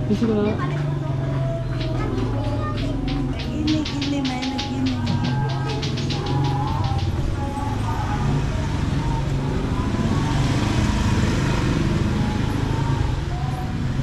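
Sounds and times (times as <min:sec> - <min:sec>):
traffic engine hum: 0:00.0 - 0:14.0
rush of traffic noise: 0:00.8 - 0:14.0.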